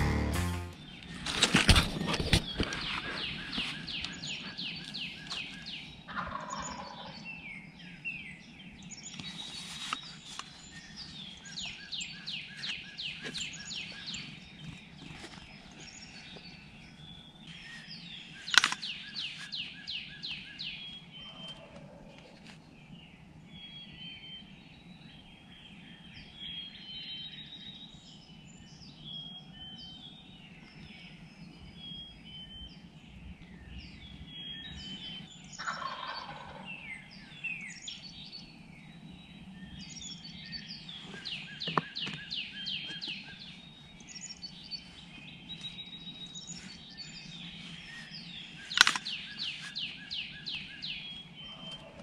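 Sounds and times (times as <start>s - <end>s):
songbirds chirping: 0.0s - 52.0s
turkey gobbling: 6.1s - 7.0s, 35.6s - 36.7s.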